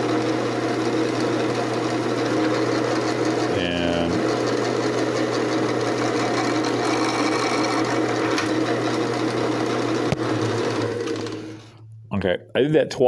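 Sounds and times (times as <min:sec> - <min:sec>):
drill bit boring wood: 0:00.0 - 0:11.7
drill press motor hum: 0:00.0 - 0:11.9.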